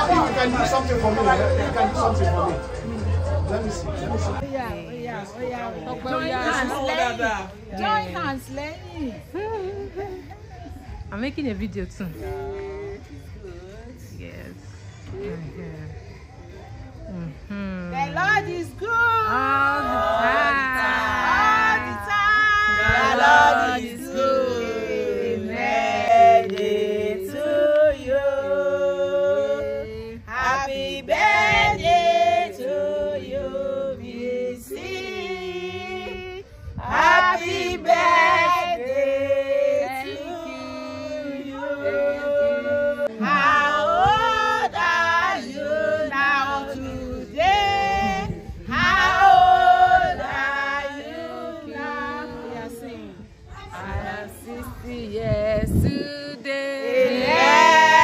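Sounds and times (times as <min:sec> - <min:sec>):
women singing in chorus: 0:17.1 - 0:58.0.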